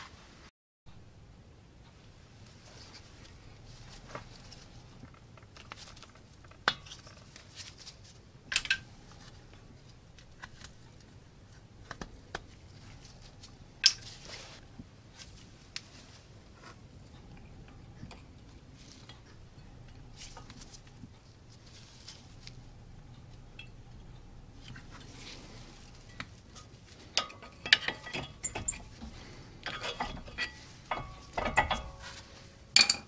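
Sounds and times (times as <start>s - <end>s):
metal tool clicks and knocks: 8.5s - 8.9s, 27.2s - 32.2s, 32.8s - 33.0s.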